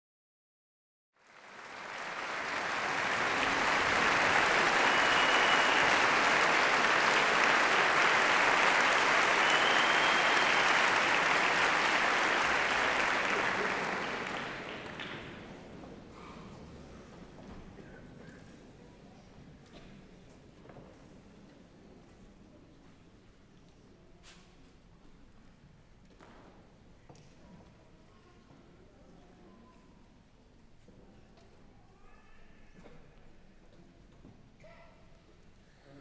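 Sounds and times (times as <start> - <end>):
audience applauding: 1.2 - 15.6.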